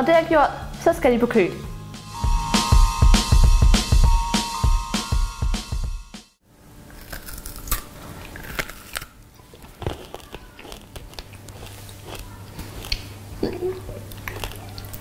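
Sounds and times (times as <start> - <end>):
crunching chocolate snacks: 6.9 - 13.1, 13.8 - 15.0.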